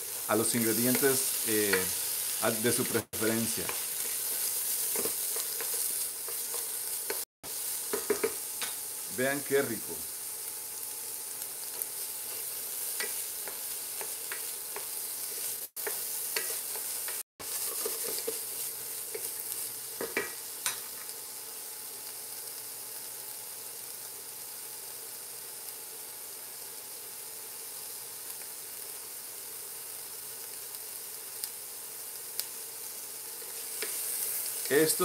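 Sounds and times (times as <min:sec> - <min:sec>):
vegetables sizzling in a frying pan: 0:00.0 - 0:35.0
wooden spoon scraping a pan: 0:02.7 - 0:07.2, 0:11.9 - 0:20.3.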